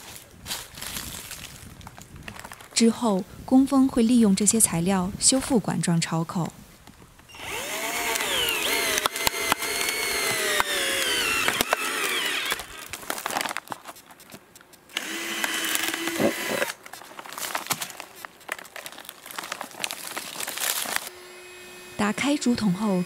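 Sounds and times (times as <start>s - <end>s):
bamboo tube crackling and knocking: 6.9s - 21.1s
power tool cutting bamboo: 7.3s - 13.5s, 14.9s - 16.8s, 20.6s - 23.0s.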